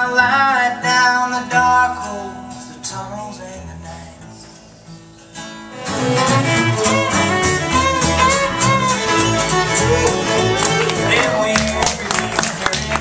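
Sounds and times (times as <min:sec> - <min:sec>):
strummed acoustic guitar: 0:00.0 - 0:13.0
fiddle melody: 0:05.7 - 0:13.0
folk string band playing: 0:05.7 - 0:13.0
plucked upright bass: 0:05.7 - 0:13.0.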